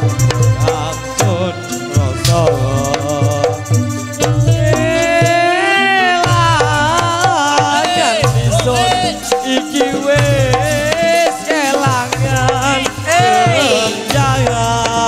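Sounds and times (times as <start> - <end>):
pulsing bass: 0.0 - 5.5, 8.3 - 9.2
high melody with vibrato: 0.0 - 15.0.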